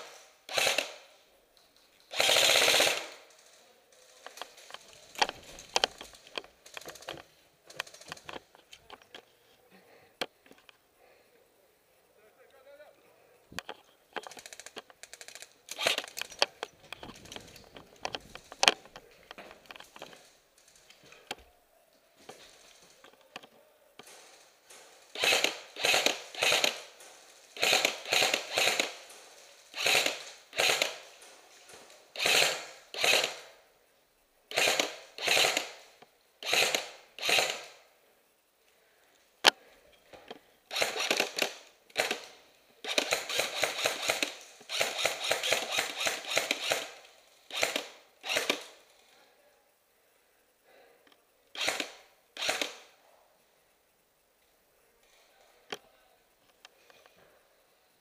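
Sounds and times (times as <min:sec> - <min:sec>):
airsoft rifle full-auto bursts: 0:00.0 - 0:01.1, 0:02.1 - 0:07.1, 0:14.3 - 0:16.3, 0:24.0 - 0:31.2, 0:32.2 - 0:33.6, 0:34.5 - 0:37.9, 0:40.7 - 0:48.8, 0:51.5 - 0:52.9.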